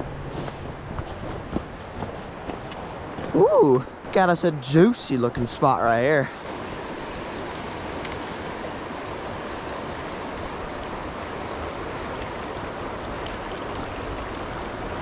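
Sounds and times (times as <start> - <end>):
river rushing over rocks: 0.0 - 15.0.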